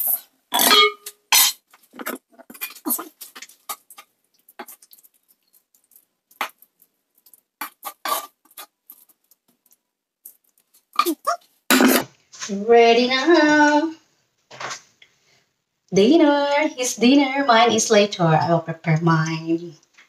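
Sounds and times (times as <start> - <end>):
spatula scraping wok: 7.6 - 9.2.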